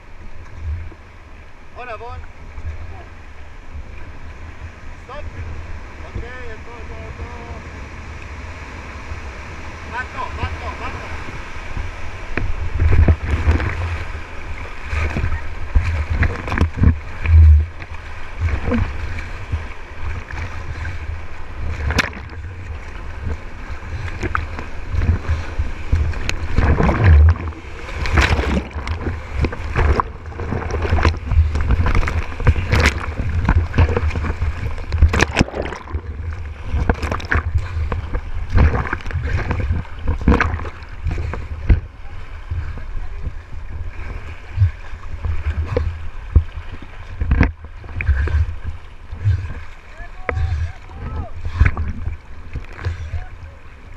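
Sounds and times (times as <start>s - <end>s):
whitewater rapids rushing: 5.0s - 44.2s, 47.8s - 53.9s
heavy splashes and thumps: 11.1s - 53.3s.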